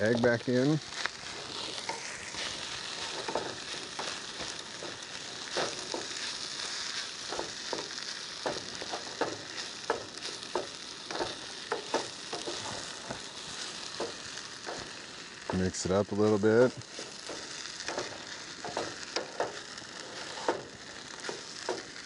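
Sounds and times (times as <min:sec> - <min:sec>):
rice sizzling in a pot: 0:00.0 - 0:22.0
wooden spoon scraping a pot: 0:01.2 - 0:14.9, 0:16.9 - 0:21.9.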